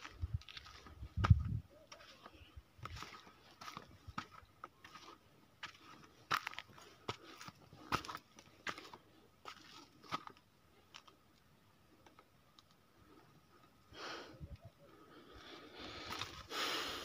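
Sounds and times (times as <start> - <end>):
footsteps crunching dry grass: 0.0 - 11.1, 15.8 - 16.7.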